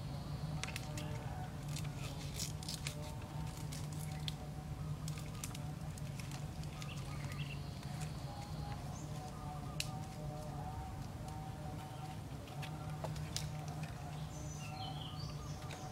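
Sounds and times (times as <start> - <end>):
steady low hum: 0.0 - 15.9
bamboo poles clicking and rustling: 0.5 - 14.7, 15.3 - 15.9
dove-like cooing: 2.9 - 15.9
birds calling: 3.8 - 15.9.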